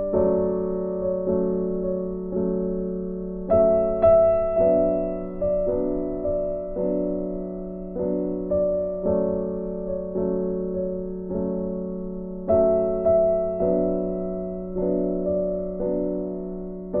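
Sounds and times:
soft piano chords: 0.0 - 17.0.

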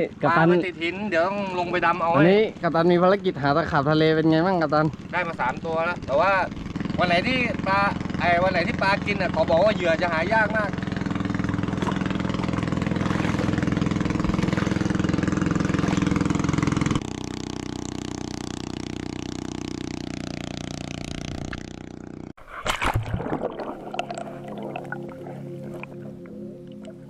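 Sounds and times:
engine drone: 0.0 - 27.0
water noise: 9.9 - 27.0
muffled underwater bubbling: 22.4 - 27.0.

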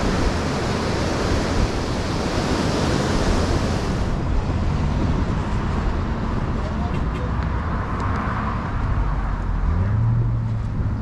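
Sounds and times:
ocean surf breaking: 0.0 - 7.3
wind buffeting microphone: 0.0 - 9.6.

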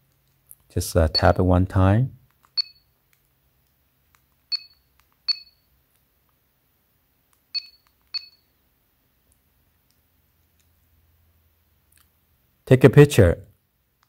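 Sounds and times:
high-pitched electronic beeps: 1.1 - 1.4, 2.6 - 2.9, 4.5 - 5.7, 7.6 - 8.5.

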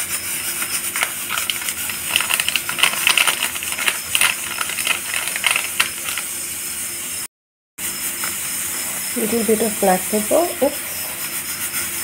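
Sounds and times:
vegetables sizzling in a frying pan: 7.9 - 10.8.

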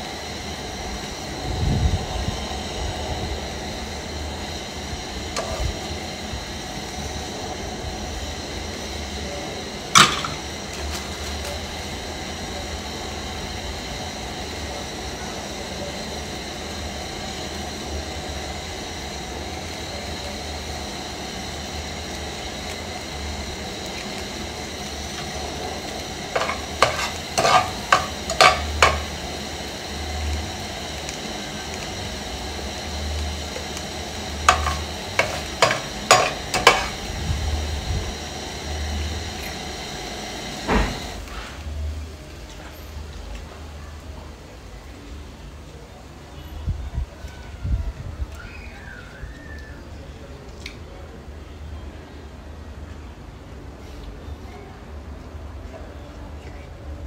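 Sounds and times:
egg sizzling in a pan: 3.4 - 41.3
metal spoon clinking on pan: 26.4 - 29.1.

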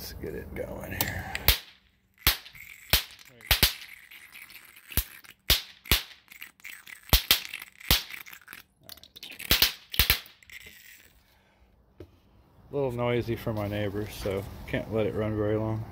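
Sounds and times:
sharp electrical arc snaps: 1.4 - 11.0.

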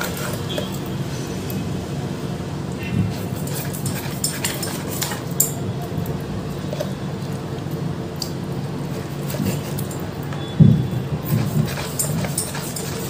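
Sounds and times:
utensils clinking against dishes: 0.0 - 1.7, 3.1 - 7.0, 11.2 - 13.0.

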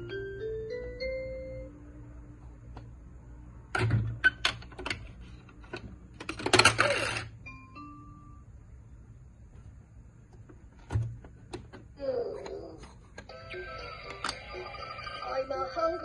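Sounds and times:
electronic toy jingle with beeps: 13.3 - 16.0.

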